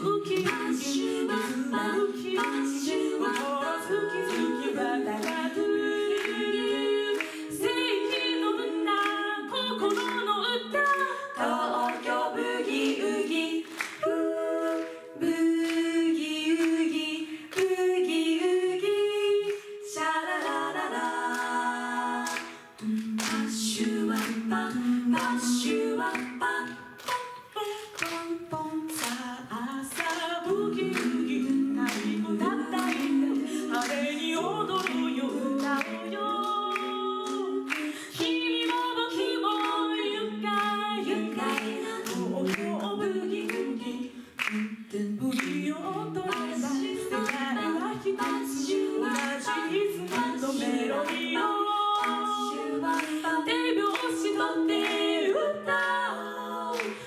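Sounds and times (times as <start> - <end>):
vocal percussion beat: 0.0 - 57.0
women singing in harmony: 0.0 - 57.0.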